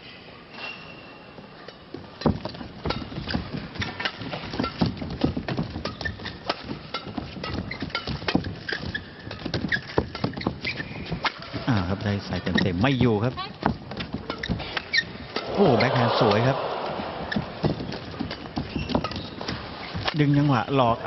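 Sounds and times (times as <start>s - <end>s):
shoe squeaks on court floor: 5.9s - 6.5s, 7.5s - 11.2s.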